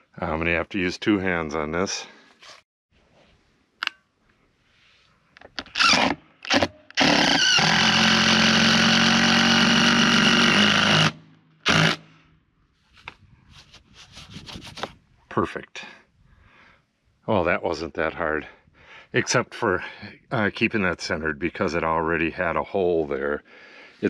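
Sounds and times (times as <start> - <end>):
electric drill: 5.8 - 12.0.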